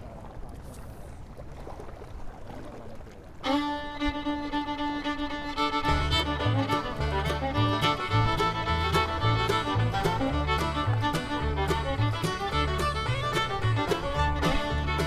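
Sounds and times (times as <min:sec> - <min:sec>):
instrumental music with held notes: 0:03.4 - 0:15.0.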